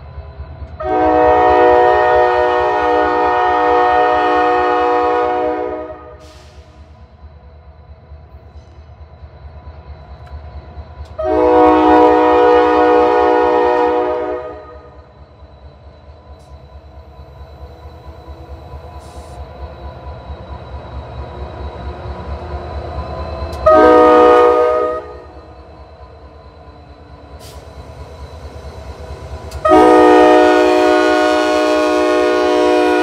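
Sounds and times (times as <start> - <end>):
low rumble of locomotive engine: 0.0 - 33.0
locomotive air horn blast: 0.8 - 6.6, 11.2 - 14.9, 23.6 - 25.3, 29.5 - 33.0.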